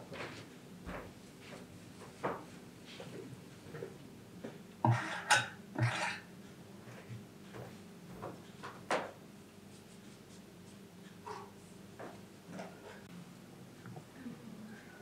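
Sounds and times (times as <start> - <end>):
kitchenware scraping: 4.8 - 6.3
kitchenware clinking: 4.9 - 6.3.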